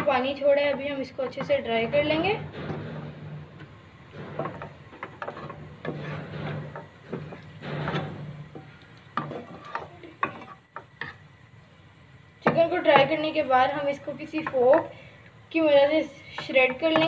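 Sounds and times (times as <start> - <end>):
spatula scraping frying pan: 0.0 - 11.3.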